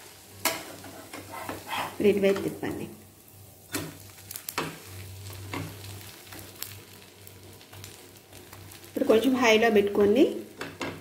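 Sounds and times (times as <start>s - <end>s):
dosa sizzling in oil: 0.0s - 11.0s
spatula scraping and tapping pan: 0.4s - 2.6s, 3.7s - 6.4s.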